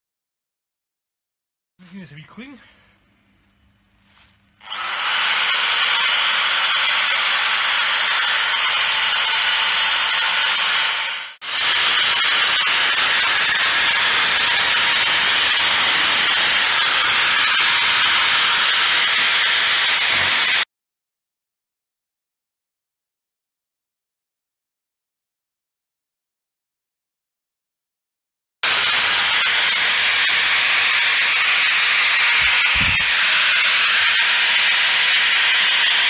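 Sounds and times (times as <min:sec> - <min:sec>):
angle grinder grinding metal: 0:04.6 - 0:20.6, 0:28.6 - 0:36.0.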